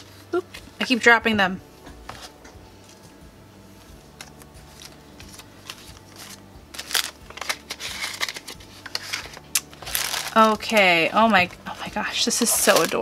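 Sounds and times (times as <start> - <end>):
cellophane and paper crinkling: 4.2 - 13.0.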